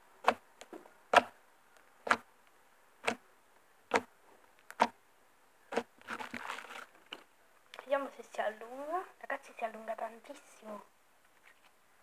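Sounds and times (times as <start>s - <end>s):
slime crackling squishes: 5.7s - 7.0s.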